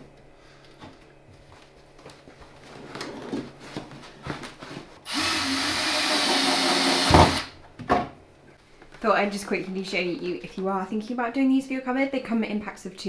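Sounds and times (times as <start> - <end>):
cordless drill driving screw: 5.1 - 7.5.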